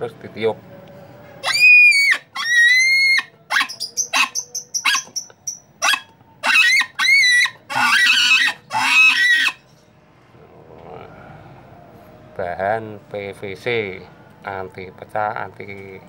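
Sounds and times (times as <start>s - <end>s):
game call pig-like squeals: 1.4s - 5.2s, 5.8s - 9.6s.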